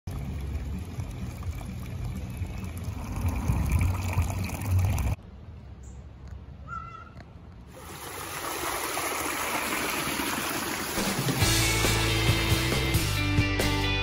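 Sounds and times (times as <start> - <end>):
water trickling into stone basin: 0.1 - 5.2, 7.7 - 11.4.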